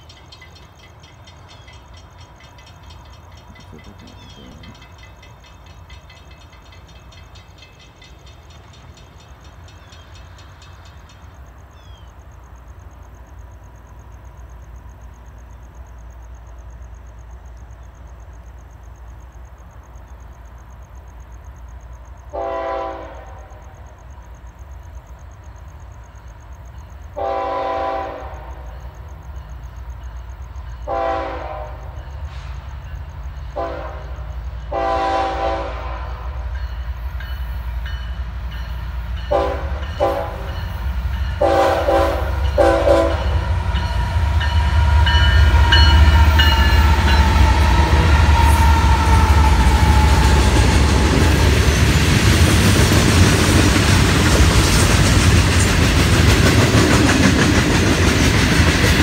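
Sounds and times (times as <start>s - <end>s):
wheels clacking over rail joints: 0.0s - 12.1s, 36.5s - 59.0s
train rumbling past: 0.0s - 59.0s
locomotive air horn blasts: 22.3s - 23.7s, 27.2s - 28.7s, 30.9s - 32.5s, 33.6s - 36.4s, 39.3s - 40.5s, 41.4s - 43.4s.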